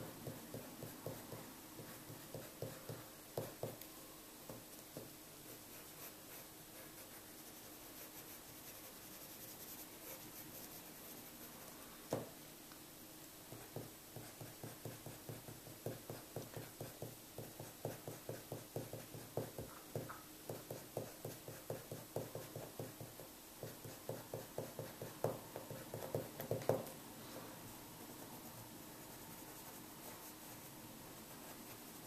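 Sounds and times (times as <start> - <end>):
pencil shading on paper: 0.0 - 3.8, 13.5 - 26.6.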